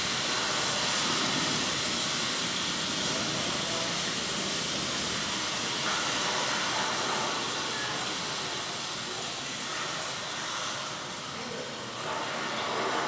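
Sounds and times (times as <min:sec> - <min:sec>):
heavy rainfall hiss: 0:00.0 - 0:13.0.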